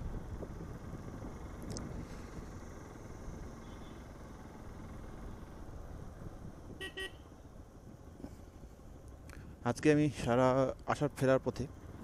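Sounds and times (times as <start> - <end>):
wind and road noise: 0.0 - 12.0
vehicle horn toots: 3.6 - 4.0, 6.8 - 7.3.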